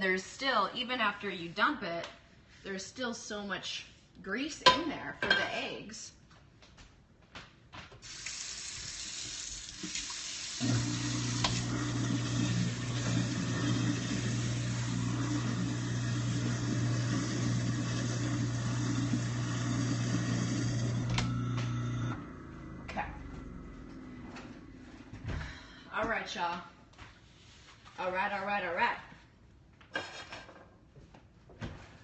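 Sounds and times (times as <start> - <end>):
tap water running into sink: 8.0 - 21.8
garbage disposal humming: 8.0 - 26.0.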